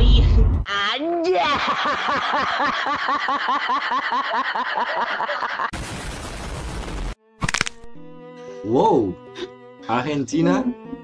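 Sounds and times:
hearty laughter: 0:01.3 - 0:05.7.

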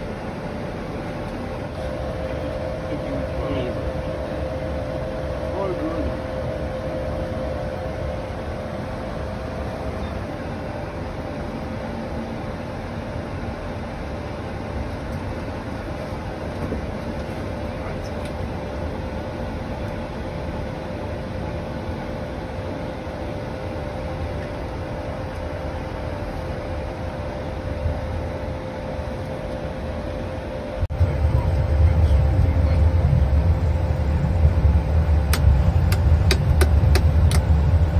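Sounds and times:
aircraft cockpit engine rumble: 0:00.0 - 0:37.9.

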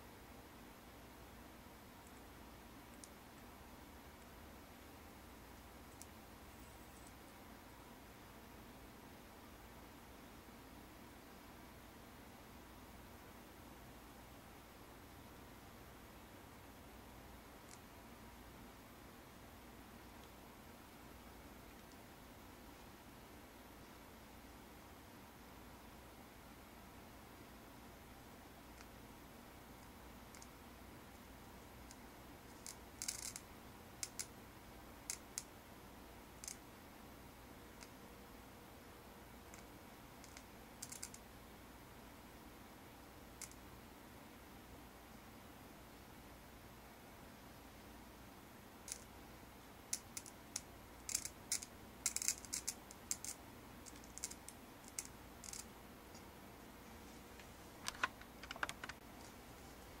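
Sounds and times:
faint steady hiss: 0:00.0 - 1:00.0
sharp clicks and snaps: 0:29.8 - 0:30.6, 0:31.9 - 0:33.4, 0:34.0 - 0:34.4, 0:39.5 - 0:41.2, 0:43.4 - 0:43.6, 0:48.9 - 0:49.1, 0:49.9 - 0:56.3, 0:57.4 - 0:59.3
faint sharp electric sparking clicks: 0:49.9 - 0:56.2.

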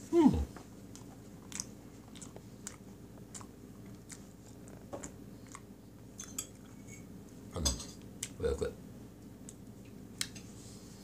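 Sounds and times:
person chewing with wet mouth clicks: 0:00.9 - 0:05.7.

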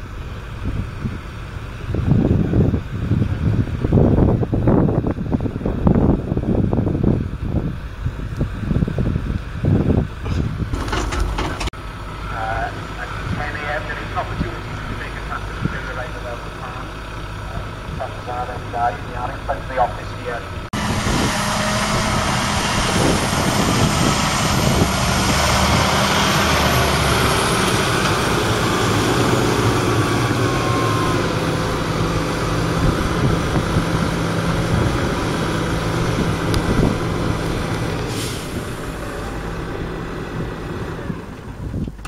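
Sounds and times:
tractor diesel engine under load: 0:00.0 - 0:42.0
rushing noise: 0:12.6 - 0:41.6.

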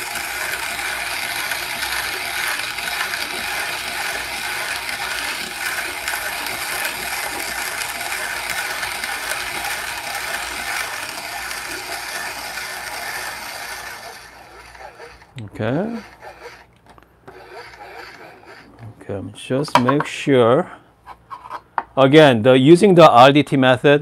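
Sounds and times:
hand grinder crushing coffee beans: 0:00.0 - 0:16.7, 0:17.3 - 0:18.9.

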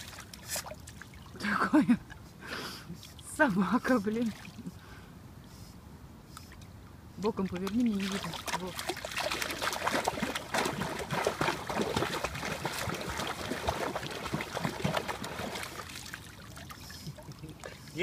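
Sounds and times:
dog paddling in water: 0:00.0 - 0:02.3, 0:07.2 - 0:18.0.

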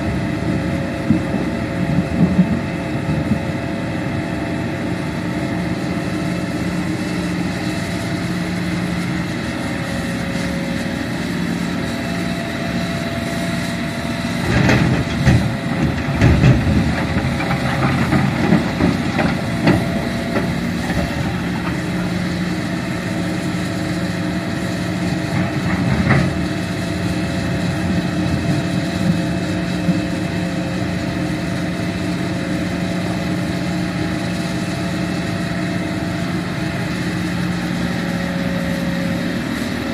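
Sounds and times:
excavator diesel engine running: 0:00.0 - 0:39.9
earth and rock clattering into truck: 0:14.5 - 0:20.4.

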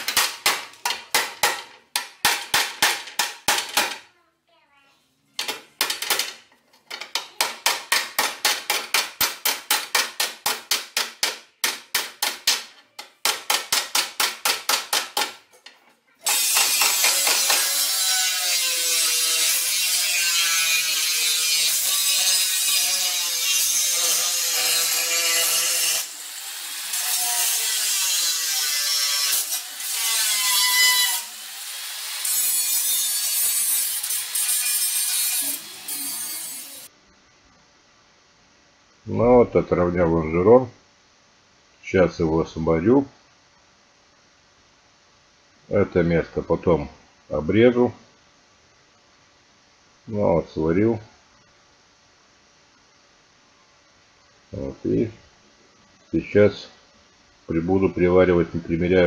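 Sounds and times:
angle grinder grinding steel: 0:16.2 - 0:36.9.

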